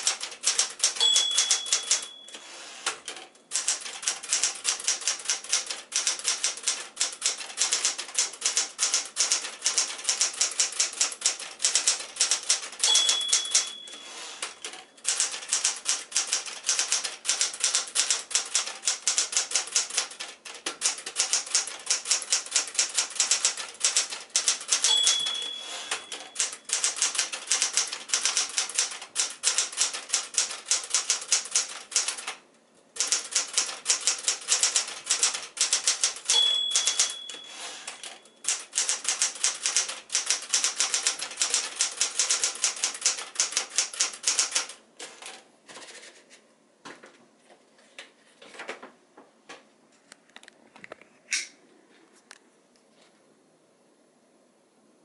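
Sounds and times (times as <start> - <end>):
manual typewriter typing: 0.0 - 32.4, 33.0 - 46.2
typewriter margin bell ding: 0.6 - 2.6, 12.5 - 15.3, 24.5 - 27.7, 35.8 - 39.0.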